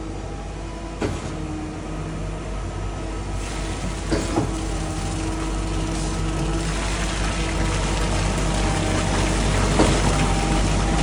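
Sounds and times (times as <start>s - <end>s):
concrete pump engine droning: 0.0s - 11.0s
concrete pump knocks: 8.7s - 10.6s.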